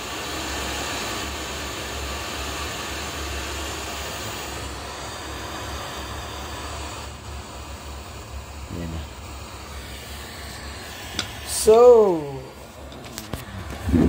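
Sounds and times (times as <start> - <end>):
radio static hiss: 5.3 - 14.0.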